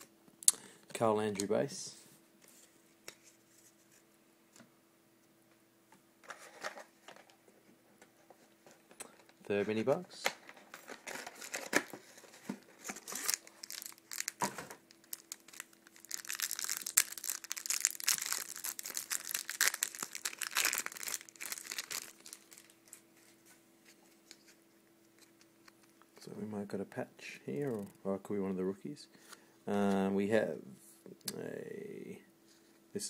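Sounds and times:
card handling: 10.3s - 23.0s
plastic wrapper crackling: 10.7s - 23.0s, 27.6s - 27.9s.

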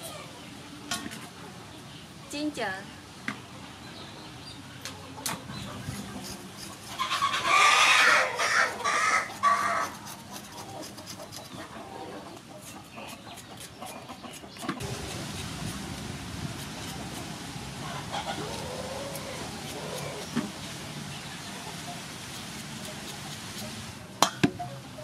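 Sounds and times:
blade scraping ginger: 5.7s - 11.8s, 12.6s - 20.6s, 22.3s - 24.0s
chicken calling loudly: 7.0s - 9.9s, 17.7s - 20.2s.

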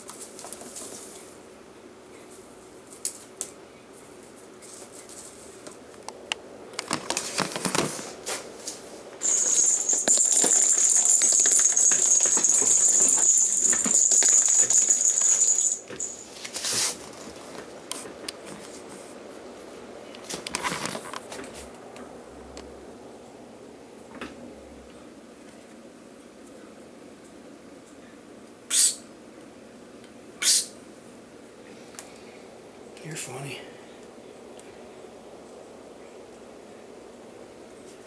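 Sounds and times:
toys clattering: 6.8s - 8.1s, 9.2s - 16.5s
plastic toy ball rattling and jingling: 9.2s - 16.5s.

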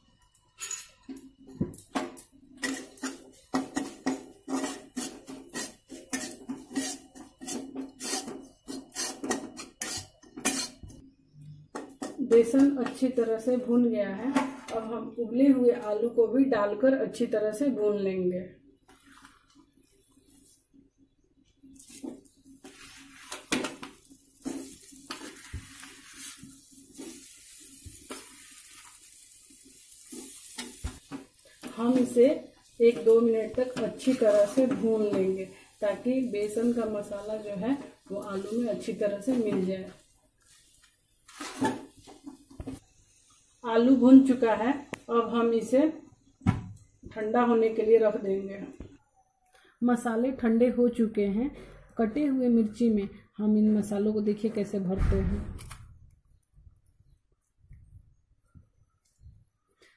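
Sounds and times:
food sizzling in oil: 2.6s - 10.9s, 21.8s - 42.0s
metal spatula scraping metal pan: 2.6s - 10.9s
spoon scraping a pan: 2.6s - 11.0s, 30.0s - 39.7s.

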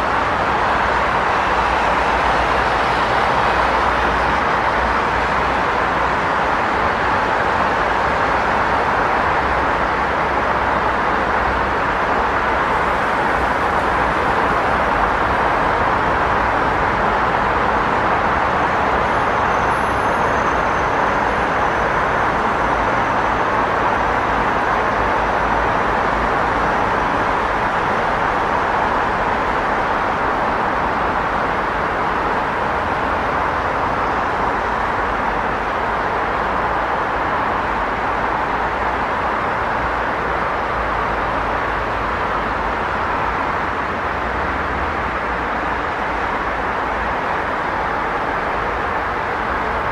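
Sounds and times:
passing cars and engines: 0.0s - 49.9s.

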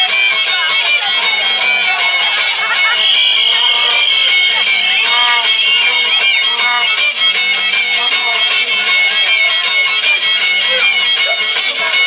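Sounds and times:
wavering sliding melody: 3.0s - 6.9s
music with high drone: 3.0s - 7.9s.

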